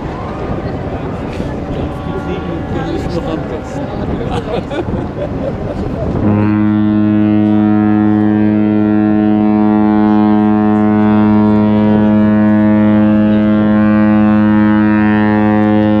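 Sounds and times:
deep ship's horn blast: 0.0s - 4.2s, 6.0s - 16.0s.

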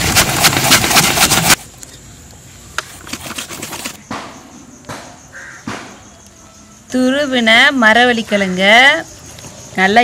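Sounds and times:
root scraped on metal grater: 0.0s - 1.6s.

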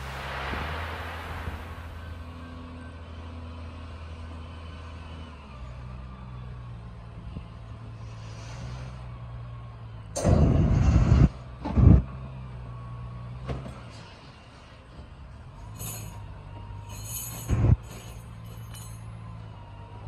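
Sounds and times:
loud rush of noise: 0.0s - 2.5s, 10.2s - 12.1s
heavy diesel engine running: 0.0s - 20.0s.

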